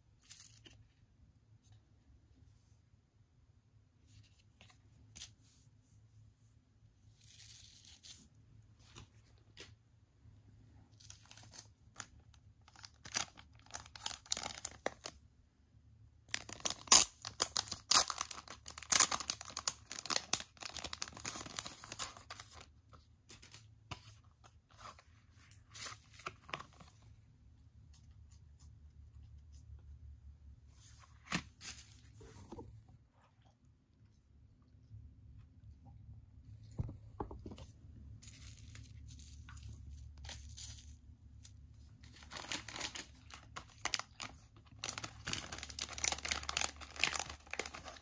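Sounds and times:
plastic packaging crackling: 11.2 - 15.2, 16.3 - 22.7, 42.1 - 48.0.

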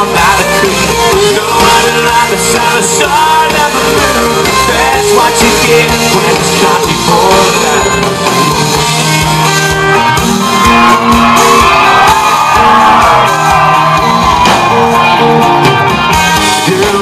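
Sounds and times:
person singing: 0.0 - 9.3, 16.1 - 17.0
country-rock band playing: 0.0 - 17.0
crowd shouting and whooping: 0.0 - 17.0.

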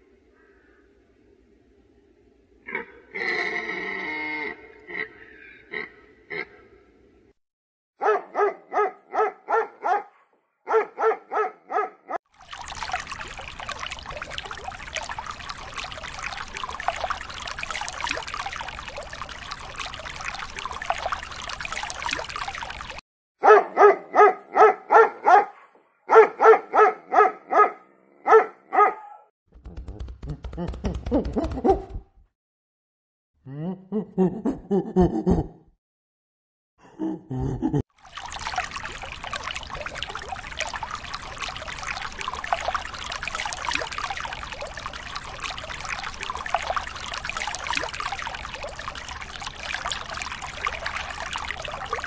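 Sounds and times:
dog yapping: 8.0 - 12.2, 23.4 - 29.3.

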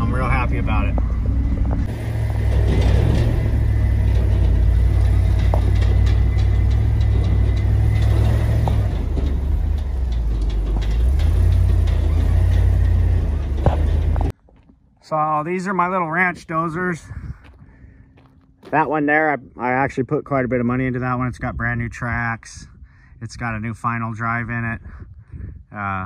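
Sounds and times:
truck engine drone: 0.0 - 14.4
ticks and knocks from the road: 0.9 - 14.8.

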